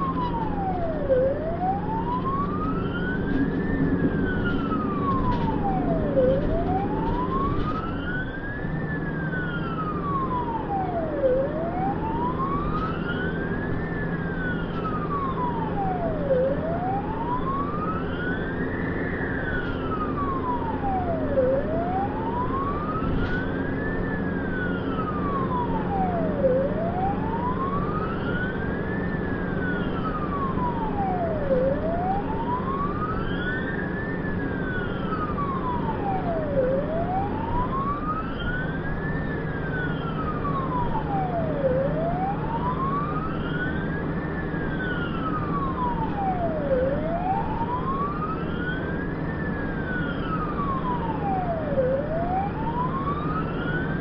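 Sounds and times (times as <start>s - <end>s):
ambulance siren wailing: 0.0s - 54.0s
engine and tyres drone: 0.0s - 54.0s.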